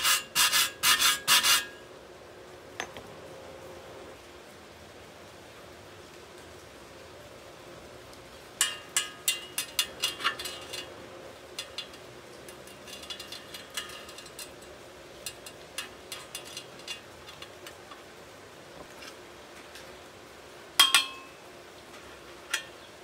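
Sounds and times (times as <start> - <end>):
metal rod tapping on steel: 8.6 - 10.9, 11.5 - 17.8, 20.8 - 21.4.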